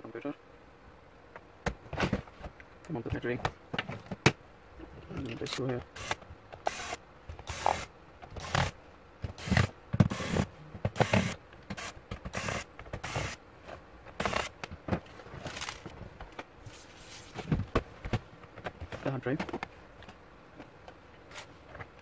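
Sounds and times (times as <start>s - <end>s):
screwdriver on screws: 5.9s - 13.4s, 14.2s - 14.6s.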